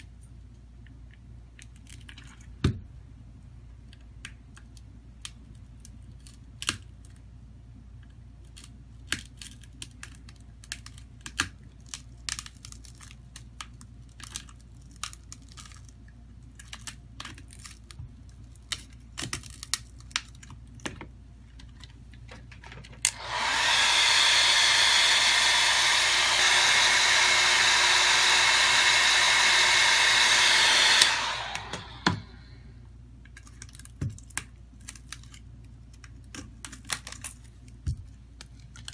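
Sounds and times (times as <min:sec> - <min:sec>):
hot-air blower whining: 0:23.0 - 0:32.8.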